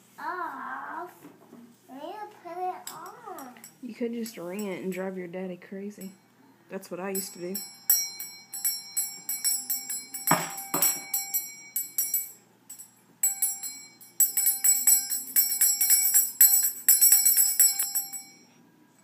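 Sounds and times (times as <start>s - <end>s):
small bell jingling: 7.1s - 18.5s.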